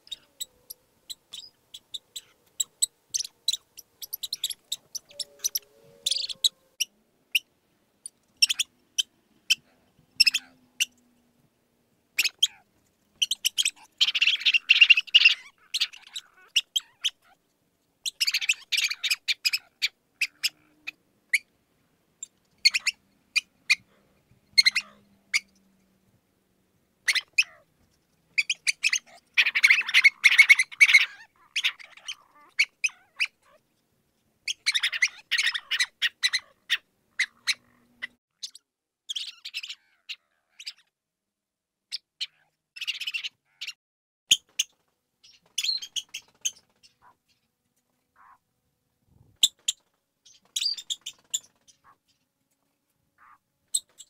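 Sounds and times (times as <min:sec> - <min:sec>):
mouse squeaking: 0:00.0 - 0:07.4, 0:08.4 - 0:09.6, 0:10.2 - 0:10.9, 0:12.2 - 0:12.6, 0:13.2 - 0:17.4, 0:22.6 - 0:23.8, 0:24.6 - 0:25.5, 0:27.1 - 0:27.6, 0:28.4 - 0:33.6, 0:34.5 - 0:37.7, 0:38.4 - 0:40.9, 0:49.4 - 0:52.0.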